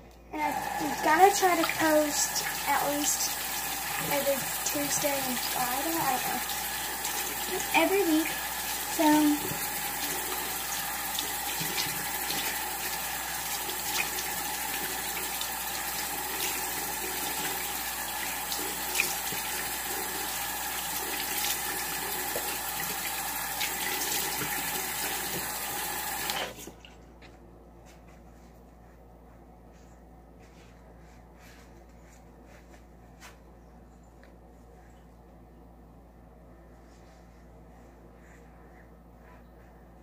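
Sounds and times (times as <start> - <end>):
faucet running into sink: 0.4 - 26.6.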